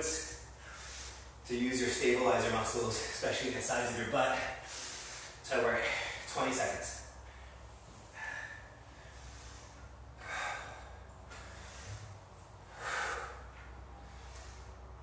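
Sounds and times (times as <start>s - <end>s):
person breathing hard: 0.2s - 1.4s, 4.4s - 6.3s, 7.2s - 15.0s.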